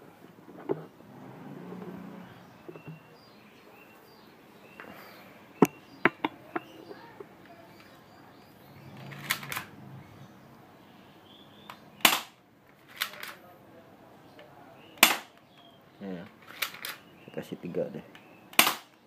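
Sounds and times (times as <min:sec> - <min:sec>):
faint bird chirps: 0:02.2 - 0:09.2, 0:10.0 - 0:12.1, 0:14.2 - 0:16.2
sharp clicks and knocks: 0:05.6 - 0:08.0.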